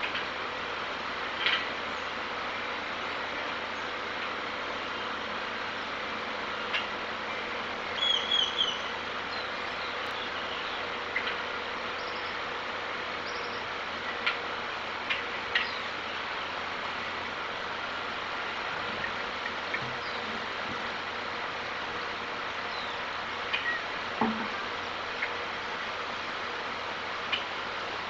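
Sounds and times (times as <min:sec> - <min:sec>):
faint hum: 0:00.0 - 0:28.0
steady hiss: 0:00.0 - 0:28.0
high bird chirps: 0:07.9 - 0:10.8.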